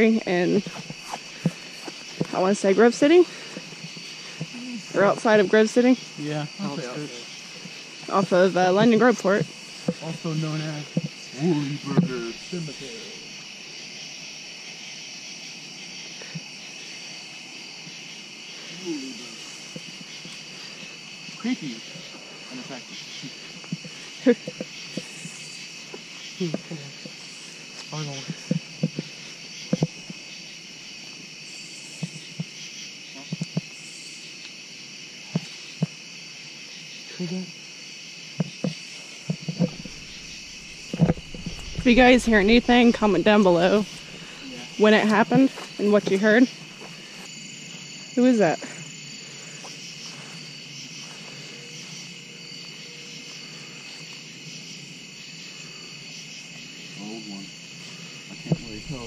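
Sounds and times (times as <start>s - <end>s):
crickets chirring: 0.0s - 59.0s
soft low thumps: 38.4s - 45.5s, 58.3s - 59.0s.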